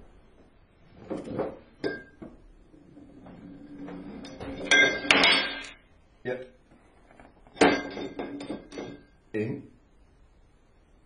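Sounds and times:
metal tubes clattering: 1.0 - 5.8, 6.9 - 9.2.

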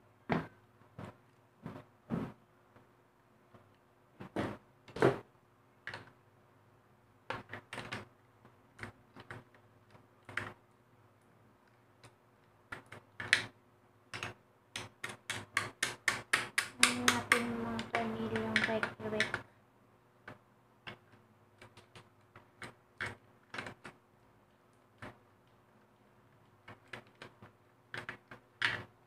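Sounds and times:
screwdriver on plastic parts: 14.1 - 19.4.

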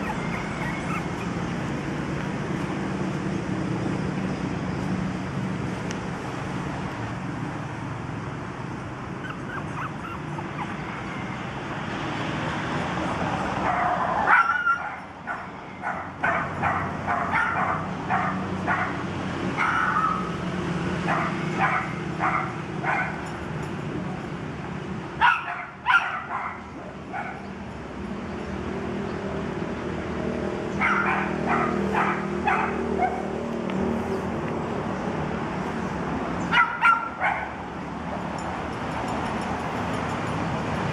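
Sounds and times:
puppies yipping: 0.0 - 2.0, 9.1 - 11.5.

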